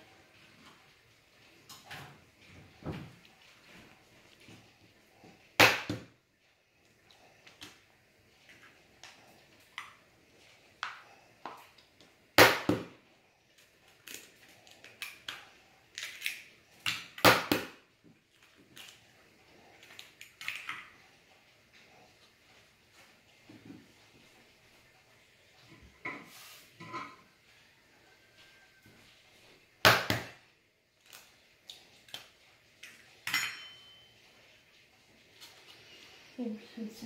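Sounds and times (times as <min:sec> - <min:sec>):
clinks of glass and shell: 0:33.2 - 0:34.1.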